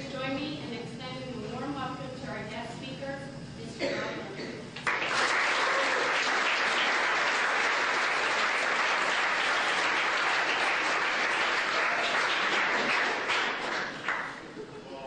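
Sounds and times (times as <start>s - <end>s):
audience applauding: 4.8s - 14.5s.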